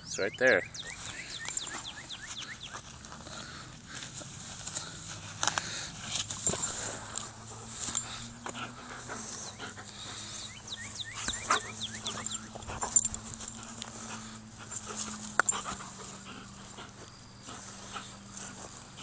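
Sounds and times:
dog panting: 1.0 - 19.0
dog whining: 10.7 - 17.6.

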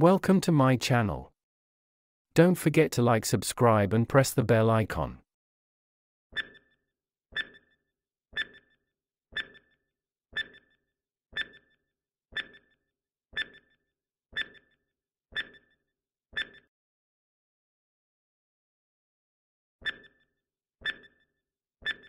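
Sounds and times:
countdown timer ticks: 6.4 - 6.8, 7.4 - 7.8, 8.4 - 9.8, 10.4 - 12.8, 13.4 - 13.8, 14.4 - 14.8, 15.4 - 15.8, 16.4 - 16.7, 19.8 - 21.2.

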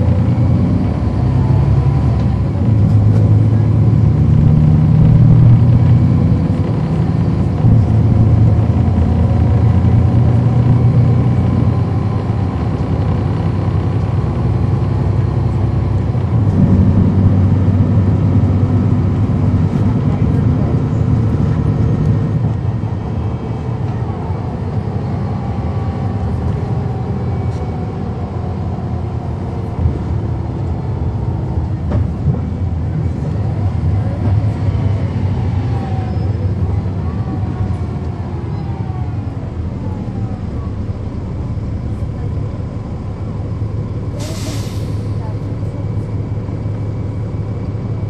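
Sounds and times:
bus diesel engine running: 0.0 - 48.0.

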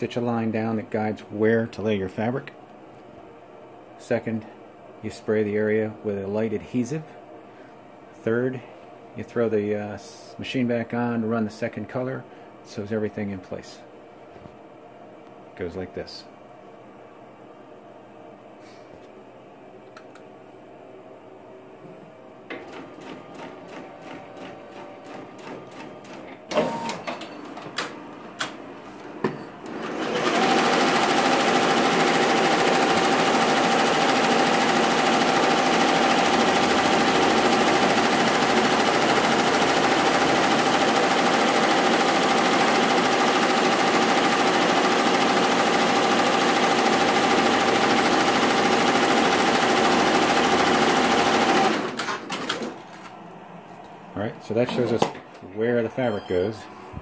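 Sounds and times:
embroidery machine stitching: 29.7 - 52.7.

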